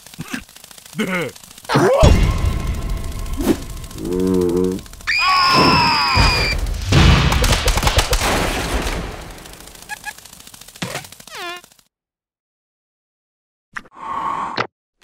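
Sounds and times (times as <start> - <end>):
rumbling crackling booms: 1.6 - 10.0
cartoon character low wail: 4.5 - 6.6
cartoon character high shriek: 5.1 - 6.6.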